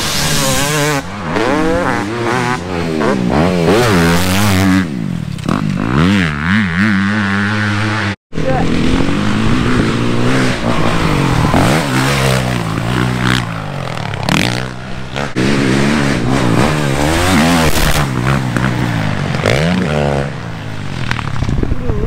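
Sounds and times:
dirt bike engine revving: 0.0s - 21.3s
wind rush on microphone: 21.2s - 22.0s.

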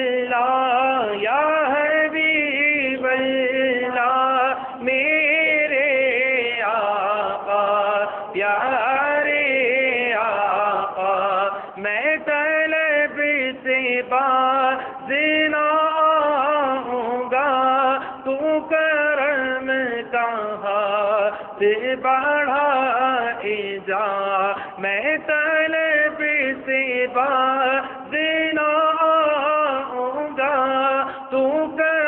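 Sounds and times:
man chanting into a microphone: 0.0s - 32.0s
breaths between phrases: 11.5s - 11.8s, 24.6s - 24.8s, 31.0s - 31.3s.

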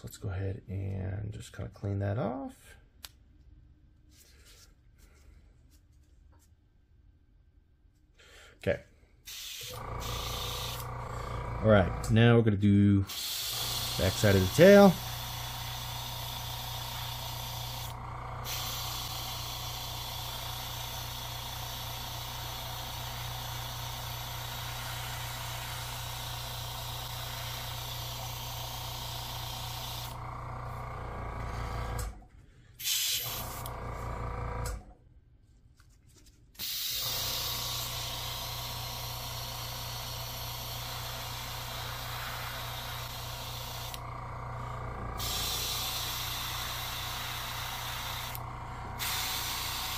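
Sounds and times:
airbrush hissing: 9.3s - 12.0s, 13.1s - 30.2s, 32.8s - 33.7s, 36.6s - 49.9s
steady electric hum: 9.6s - 30.8s.

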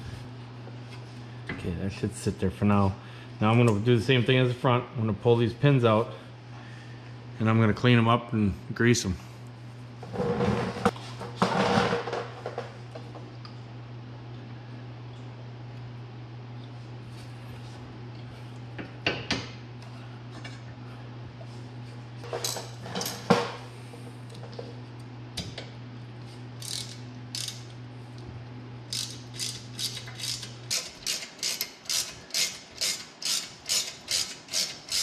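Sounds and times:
socket ratchet clicking: 26.6s - 27.6s, 28.9s - 35.0s.

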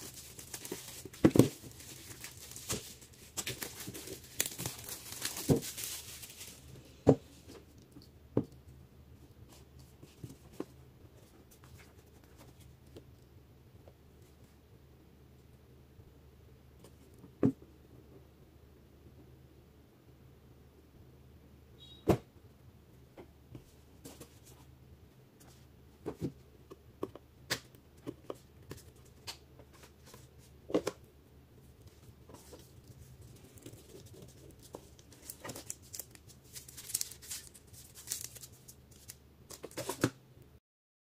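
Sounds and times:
plastic wrap crinkling: 0.0s - 6.8s, 32.3s - 40.0s.

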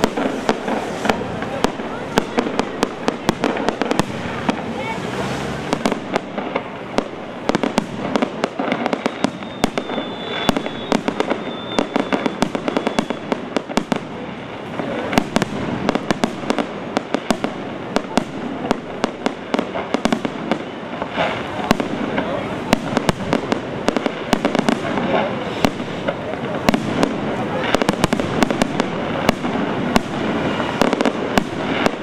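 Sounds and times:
fireworks bangs and crackles: 0.0s - 32.0s
high firework whistle: 8.6s - 13.4s.

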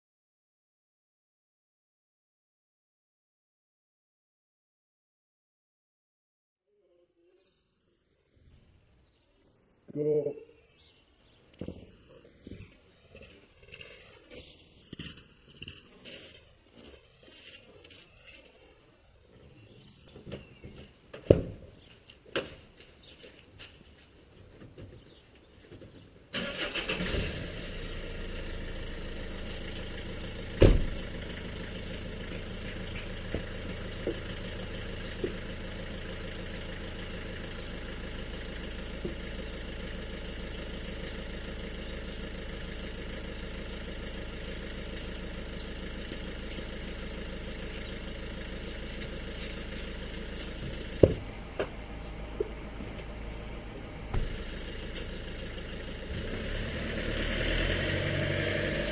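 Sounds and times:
lorry engine idling: 23.2s - 58.9s
sharp knocks: 51.0s - 51.8s.

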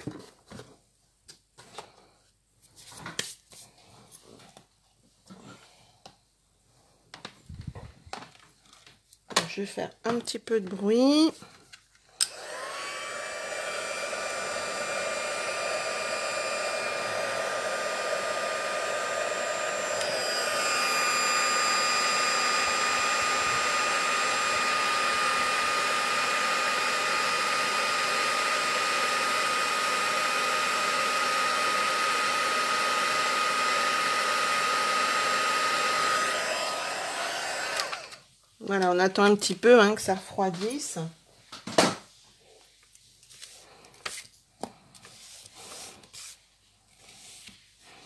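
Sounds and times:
heat gun fan whine: 12.2s - 38.2s.

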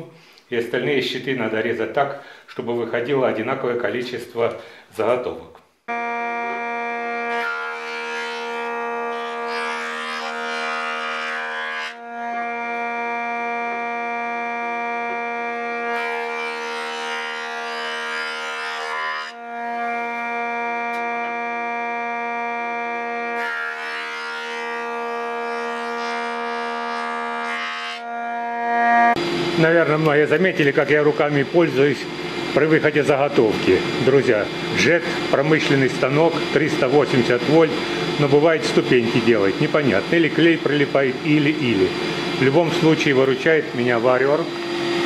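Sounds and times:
thickness planer whine: 5.9s - 45.0s
planer cutting wood hiss: 7.2s - 12.6s, 29.2s - 45.0s
steady pitched whine: 29.0s - 45.0s.

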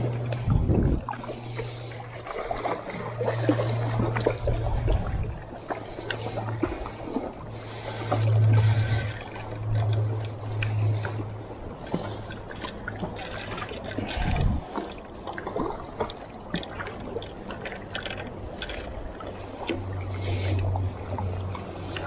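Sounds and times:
water lapping against rocks: 0.0s - 22.0s.

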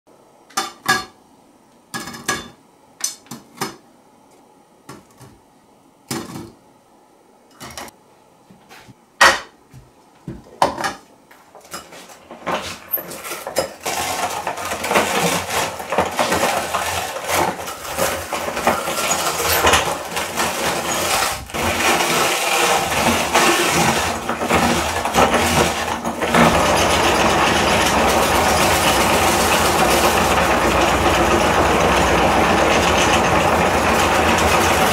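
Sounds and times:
brittle crunching in metal grinder: 12.9s - 34.9s.

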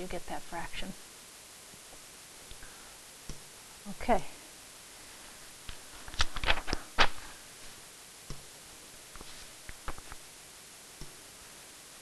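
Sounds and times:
faint steady hiss: 0.0s - 12.0s.

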